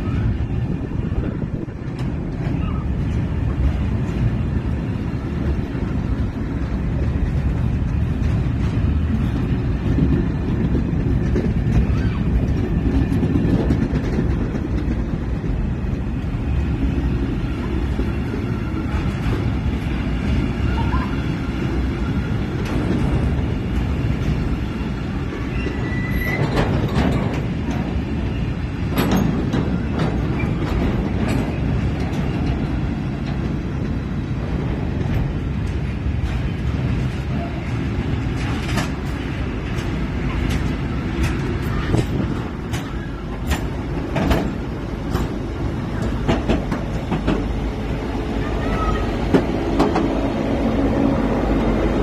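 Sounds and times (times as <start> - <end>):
train wheels rumbling on rails: 0.0 - 52.0
wheel squeal: 25.4 - 26.9.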